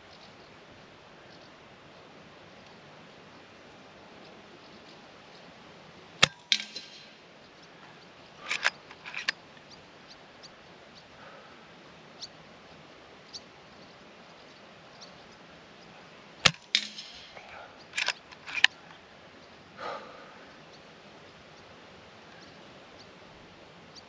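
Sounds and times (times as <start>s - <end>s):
air rifle shot crack: 6.2s - 7.2s, 16.4s - 18.7s
rifle lever metallic clicks: 6.2s - 7.2s, 8.4s - 9.4s, 16.4s - 18.8s.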